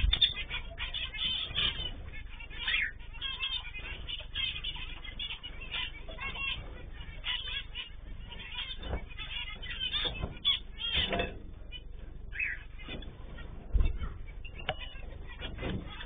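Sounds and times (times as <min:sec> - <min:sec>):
finches chirping: 0:00.0 - 0:16.0
thumps: 0:06.1 - 0:16.0.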